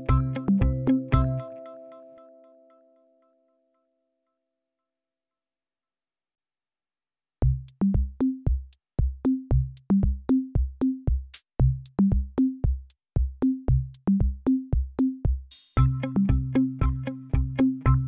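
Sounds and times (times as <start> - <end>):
electronic drum machine beat: 0.0 - 1.4, 7.4 - 18.0.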